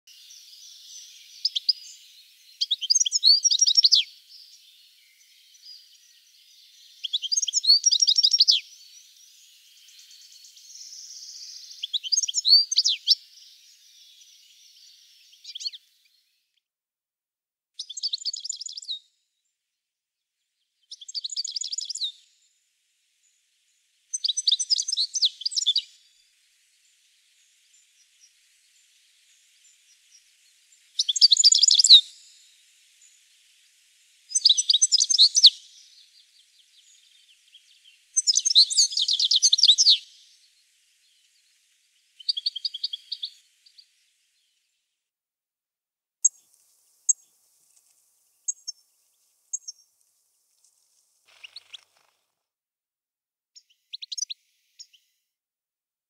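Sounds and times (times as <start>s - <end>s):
goldfinch twittering: 31.0s - 33.5s, 42.2s - 43.8s, 51.3s - 52.1s.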